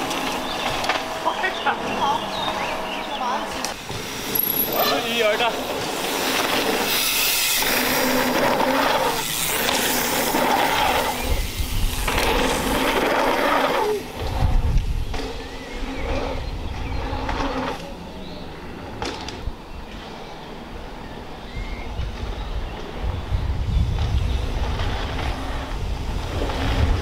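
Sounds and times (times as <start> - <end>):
bike tyres crunching over gravel: 0.0 - 20.6.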